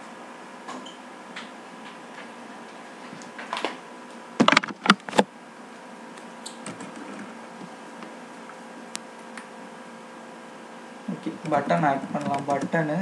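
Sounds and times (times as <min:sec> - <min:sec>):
faint electrical hum: 0:00.0 - 0:13.0
loud knocks and clicks: 0:04.4 - 0:05.2.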